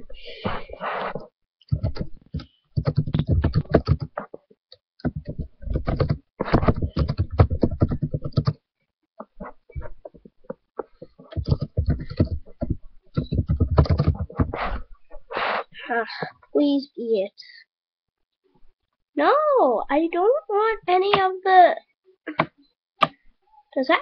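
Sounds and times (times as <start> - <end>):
keyboard typing: 1.7 - 4.4, 5.0 - 8.6, 9.2 - 14.5.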